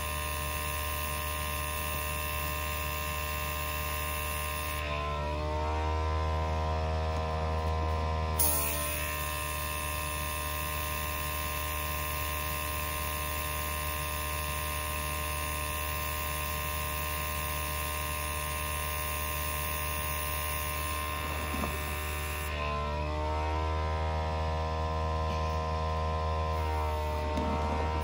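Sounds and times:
air compressor humming: 0:00.0 - 0:28.0
airbrush hissing: 0:08.4 - 0:22.5.

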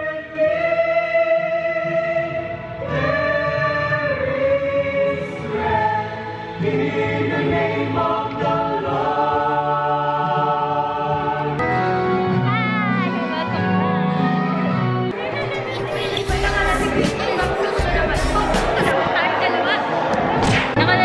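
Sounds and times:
choir singing long notes: 0:00.0 - 0:12.2.

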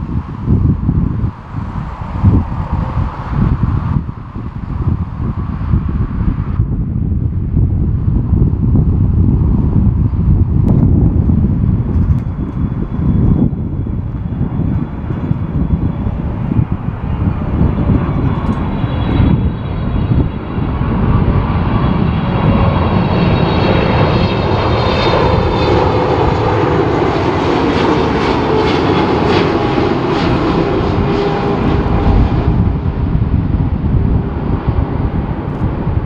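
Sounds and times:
jet plane flying past: 0:00.0 - 0:36.0.

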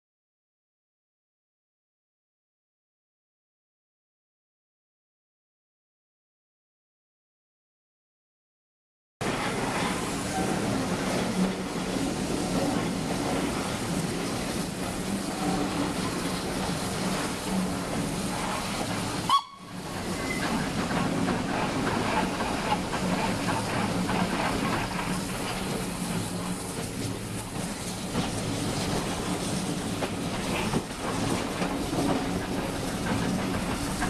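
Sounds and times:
carriage wheels clattering on rails: 0:09.2 - 0:34.0
steam locomotive exhaust: 0:09.2 - 0:34.0.

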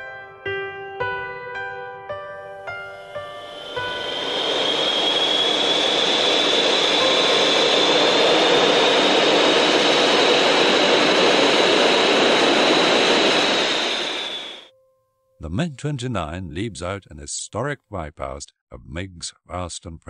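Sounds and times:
jet engines roaring with whine: 0:03.0 - 0:14.7.

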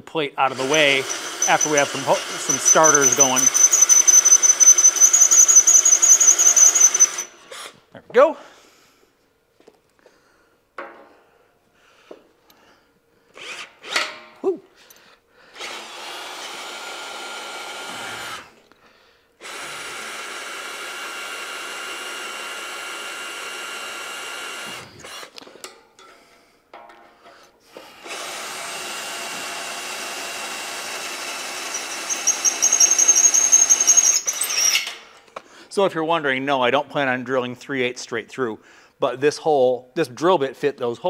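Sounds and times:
high-pitched squeal: 0:00.5 - 0:07.3, 0:31.7 - 0:34.9
cordless drill drilling into steel: 0:00.5 - 0:07.8, 0:13.4 - 0:14.0, 0:15.6 - 0:18.6, 0:19.4 - 0:25.4, 0:27.8 - 0:35.0.

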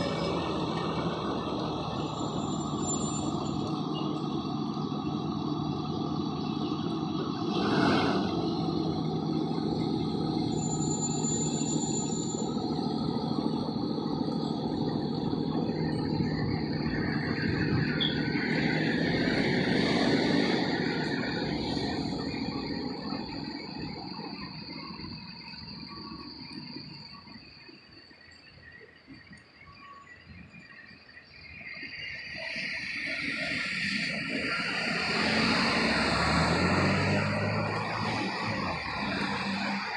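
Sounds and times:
steady high-pitched tone: 0:00.0 - 0:39.9
traffic on wet street: 0:00.0 - 0:39.9.

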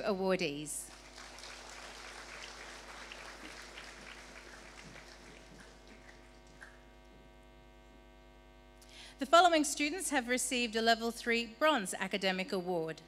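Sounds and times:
electrical mains hum: 0:00.0 - 0:13.0
audience applauding: 0:00.9 - 0:06.9.

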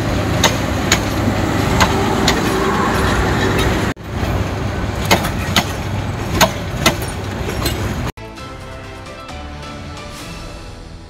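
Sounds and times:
wheels clacking over rail joints: 0:00.0 - 0:08.1
train coaches rumbling past: 0:00.0 - 0:11.0.

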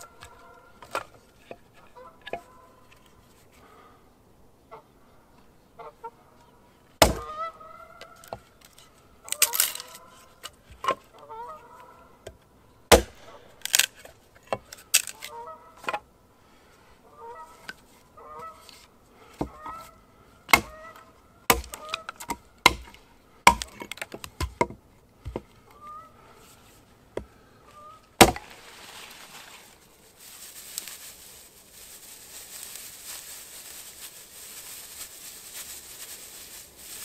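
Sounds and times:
geese honking: 0:00.0 - 0:00.9, 0:07.2 - 0:08.3, 0:11.1 - 0:12.2, 0:14.8 - 0:16.0, 0:17.0 - 0:18.8, 0:19.5 - 0:22.6, 0:25.7 - 0:26.6, 0:27.4 - 0:29.8
sharp knocks and cracks: 0:07.0 - 0:07.3, 0:12.9 - 0:15.3, 0:20.5 - 0:20.8, 0:21.5 - 0:25.5, 0:28.2 - 0:28.5.

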